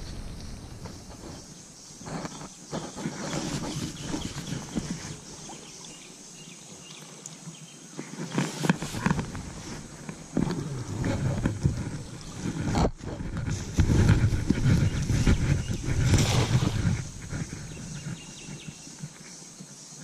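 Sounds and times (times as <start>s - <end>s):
footsteps on stony riverbed: 8.0s - 19.3s.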